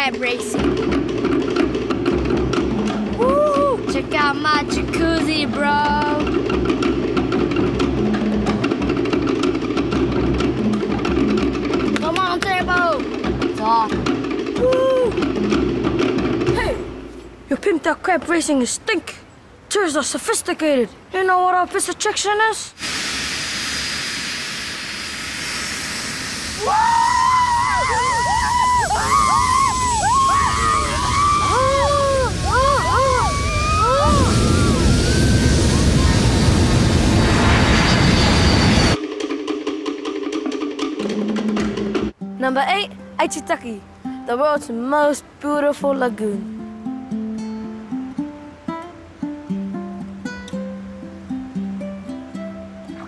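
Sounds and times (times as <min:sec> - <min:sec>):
low drum beat: 0:00.0 - 0:17.2, 0:28.2 - 0:37.5
people screaming: 0:03.1 - 0:03.9, 0:14.6 - 0:15.2, 0:26.6 - 0:38.6
sharp wooden knocks: 0:06.0 - 0:14.6
jet engine roar: 0:22.8 - 0:26.9, 0:28.9 - 0:39.0.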